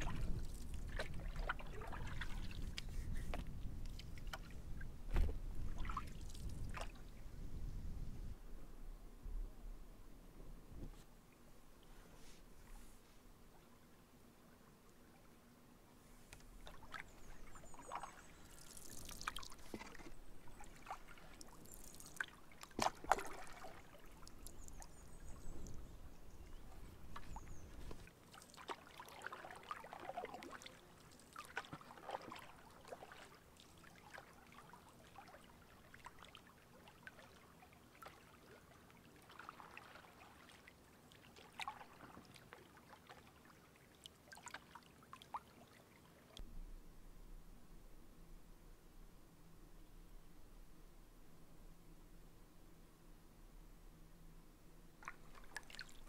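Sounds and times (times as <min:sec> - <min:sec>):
paddle splashing in water: 0:00.0 - 0:07.1, 0:16.4 - 0:25.4, 0:26.7 - 0:35.4, 0:39.1 - 0:43.2, 0:55.0 - 0:56.0.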